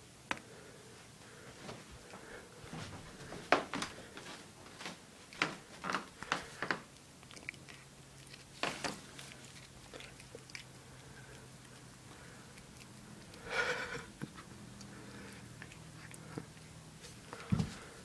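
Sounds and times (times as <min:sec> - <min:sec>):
cat chewing on string: 0:05.2 - 0:18.0.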